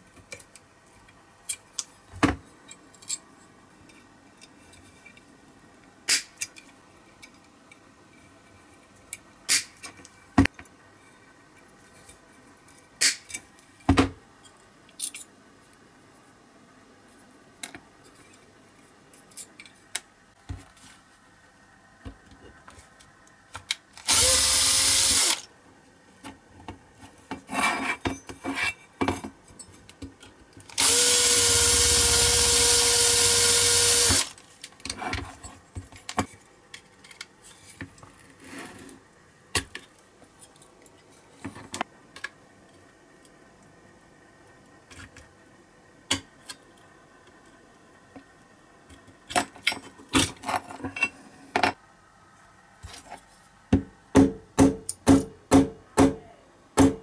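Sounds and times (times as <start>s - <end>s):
small power drill running: 24.0s - 25.4s, 30.8s - 34.3s.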